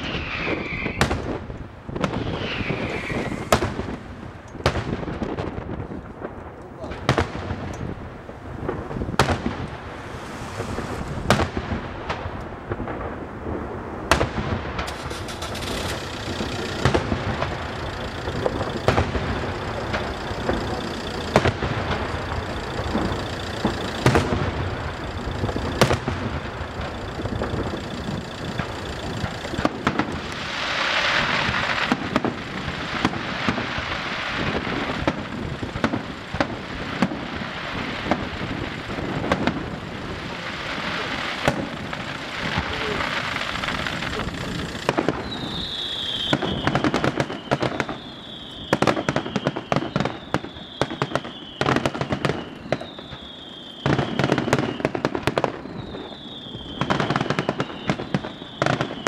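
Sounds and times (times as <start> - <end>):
firework shells bursting with bangs: 0.0 - 59.0
fireworks crackling: 0.0 - 59.0
loud hiss: 2.0 - 4.6, 9.0 - 13.0, 14.9 - 46.8.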